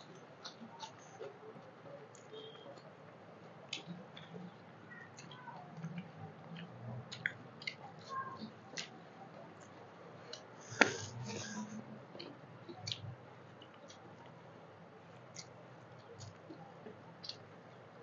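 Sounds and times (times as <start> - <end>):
chewing and lip smacks: 3.7 - 11.5, 12.1 - 14.4, 15.1 - 17.5.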